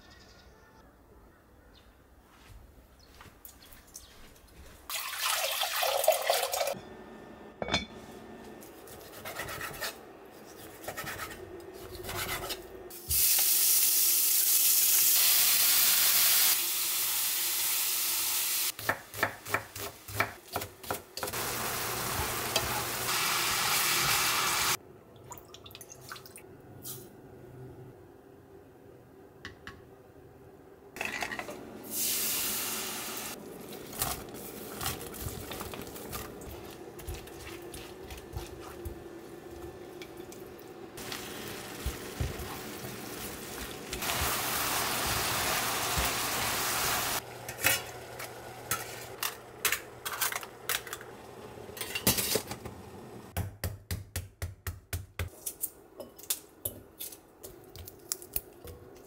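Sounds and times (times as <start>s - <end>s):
sauce hissing in pan: 13.0s - 18.7s, 21.4s - 24.8s, 31.9s - 33.4s, 41.0s - 47.2s
meat sizzling in frying pan: 13.1s - 18.7s, 21.4s - 24.8s, 41.0s - 47.2s.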